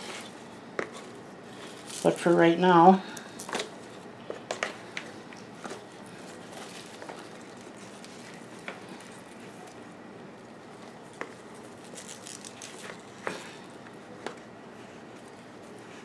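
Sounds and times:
hands rustling in soil and leaves: 5.8 - 9.6.

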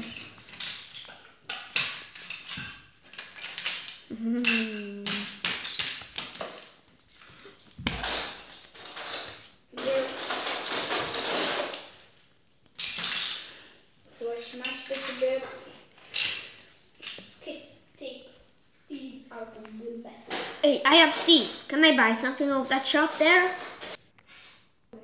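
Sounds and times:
plastic toy pieces clattering: 0.0 - 6.8, 7.9 - 12.0, 12.8 - 13.6, 16.0 - 17.2
child's voice: 4.1 - 5.4, 9.7 - 10.3, 14.1 - 15.8, 17.3 - 23.6.

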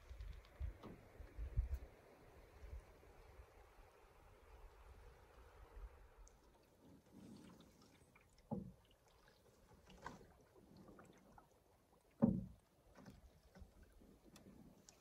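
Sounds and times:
paddle swishing through water: 0.0 - 15.0
water drips: 4.7 - 15.0.

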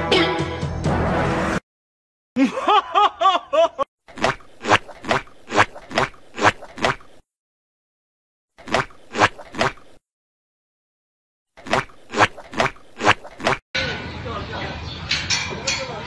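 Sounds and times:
person laughing: 2.4 - 3.9.

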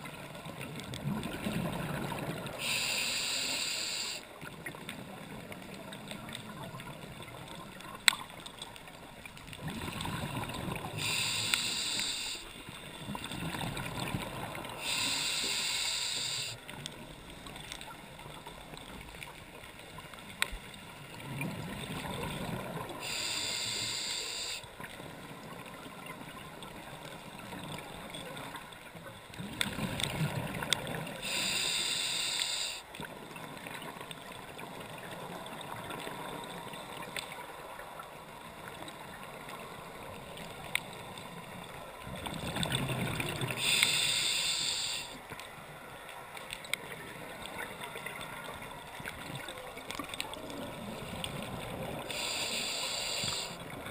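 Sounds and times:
air hissing through regulator: 2.6 - 4.2, 11.0 - 12.5, 14.8 - 16.6, 23.0 - 24.6, 31.2 - 32.8, 43.6 - 45.2, 52.1 - 53.6
scuba regulator breathing bubbles: 9.8 - 12.5, 14.0 - 16.6, 31.2 - 32.8, 43.0 - 45.2, 52.0 - 53.7.

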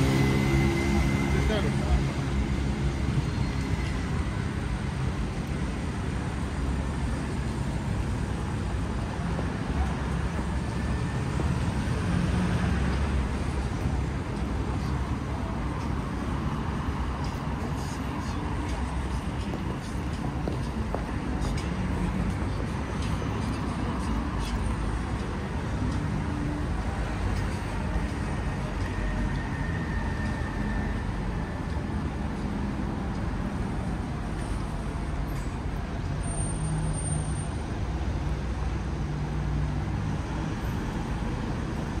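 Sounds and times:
cars and buses passing: 0.0 - 42.0
low rumble of engines and tyres: 0.0 - 42.0.

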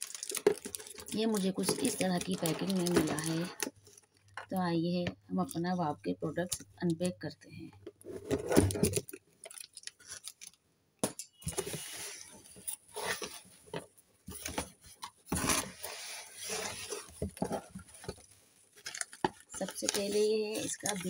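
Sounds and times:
cardboard and paper rustling: 0.0 - 4.3, 7.9 - 10.5, 11.4 - 21.0.

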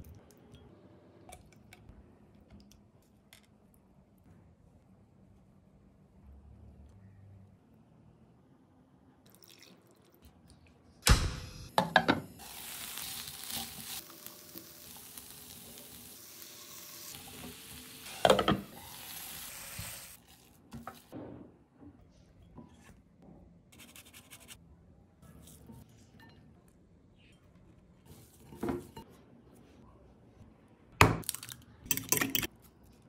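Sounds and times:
chicken sizzling in frying pan: 12.4 - 20.3.

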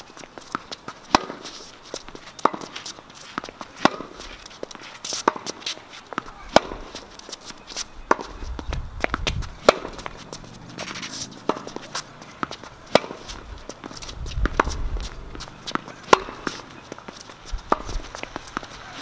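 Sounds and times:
racket hitting tennis ball: 0.0 - 19.0
shoe steps on court: 0.0 - 19.0
ball bouncing: 2.0 - 4.2, 5.2 - 7.0, 8.1 - 19.0.

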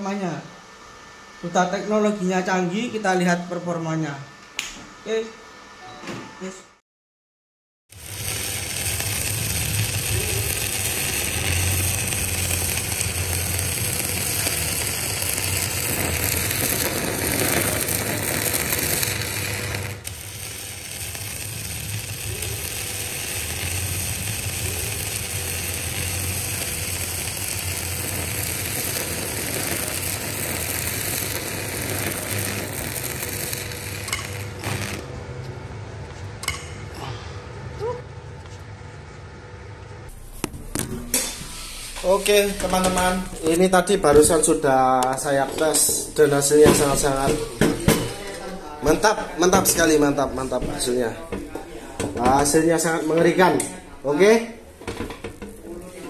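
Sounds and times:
welding arc crackling: 7.9 - 35.4, 42.2 - 47.6.

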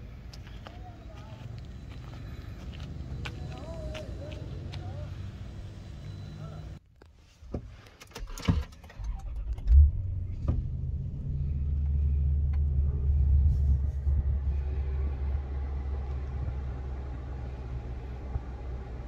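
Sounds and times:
car engine starting and idling: 8.0 - 19.0.

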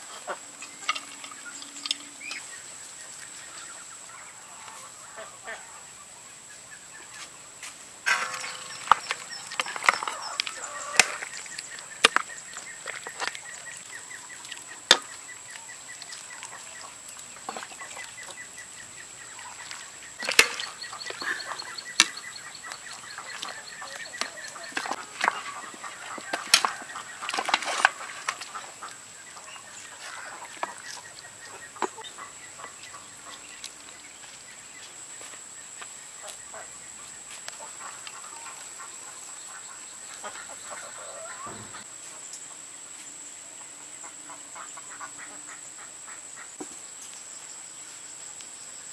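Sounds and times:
chickens clucking: 0.0 - 6.0, 8.1 - 35.4, 36.2 - 42.6
metal ladle scraping a wok: 8.1 - 11.5.

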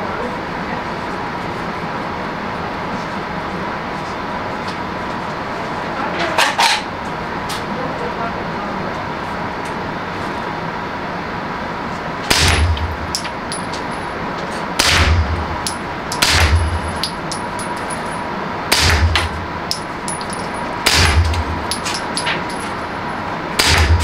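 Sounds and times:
suppressed pistol shots: 14.8 - 15.3, 16.2 - 16.8, 18.7 - 19.3, 20.8 - 21.4, 23.6 - 24.0.

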